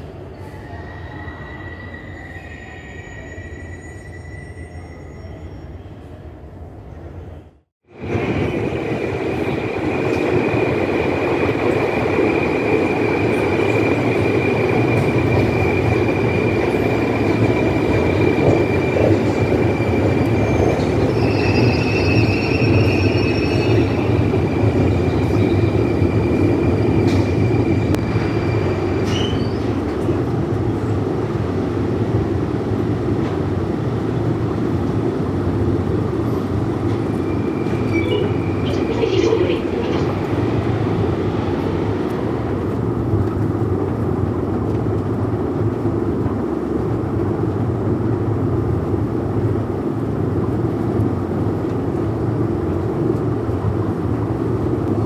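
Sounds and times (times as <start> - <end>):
high squeal: 0.3 - 6.2, 14.6 - 29.8.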